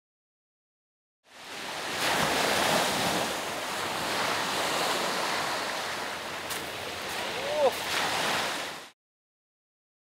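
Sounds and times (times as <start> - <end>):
waves washing onto pebble beach: 1.4 - 8.9.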